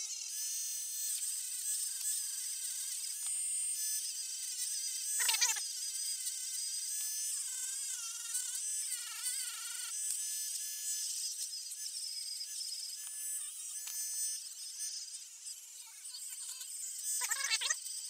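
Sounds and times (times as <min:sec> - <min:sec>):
rotary tool motor whine: 0:00.0 - 0:18.0.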